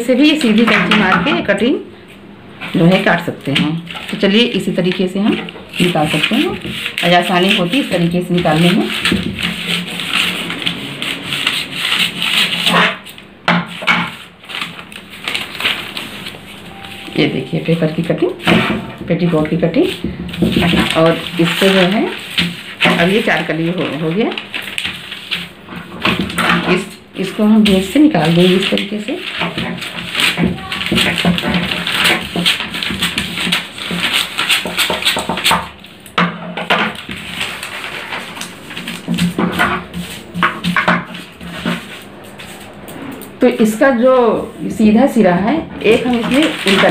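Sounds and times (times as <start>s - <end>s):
paper rustling: 2.7s - 36.0s, 36.6s - 42.9s, 45.9s - 46.9s
scissors snipping newspaper: 2.7s - 42.7s, 45.9s - 46.9s
scissors snipping paper: 3.5s - 10.4s, 27.6s - 35.7s, 46.0s - 46.9s.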